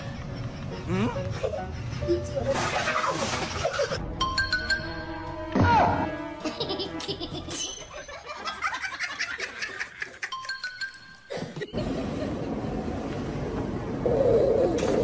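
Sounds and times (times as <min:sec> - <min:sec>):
background music: 0:00.0 - 0:08.9
people laughing: 0:06.4 - 0:10.4.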